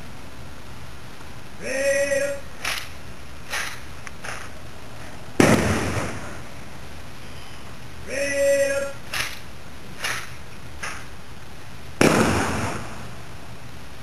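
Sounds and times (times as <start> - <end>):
person shouting command: 1.6 - 2.8, 8.0 - 9.2
rifle volley with echo: 5.4 - 6.5, 12.0 - 13.1.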